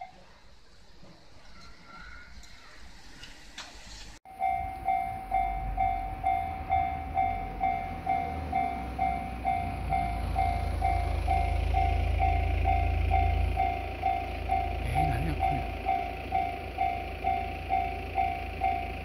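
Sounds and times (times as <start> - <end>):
train rumble: 0.0 - 19.0
level crossing warning bell: 4.3 - 19.0.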